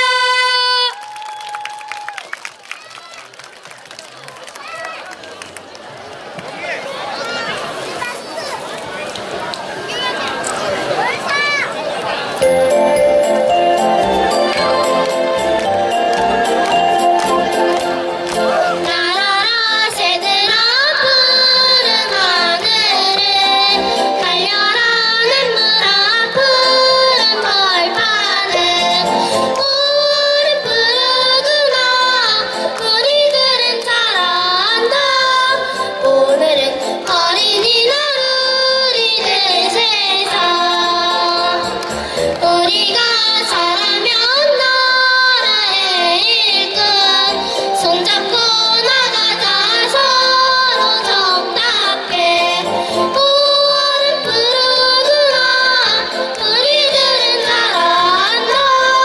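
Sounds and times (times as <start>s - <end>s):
children's choir singing: 12.4s - 59.0s.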